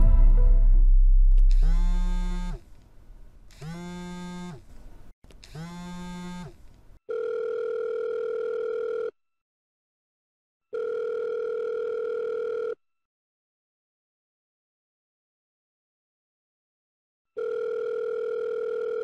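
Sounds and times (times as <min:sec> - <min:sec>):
low drone: 0:00.0 - 0:02.6
phone buzzes: 0:01.6 - 0:02.6, 0:17.4 - 0:19.0
two-pitch phone ringing tone: 0:10.7 - 0:12.8, 0:17.4 - 0:19.0.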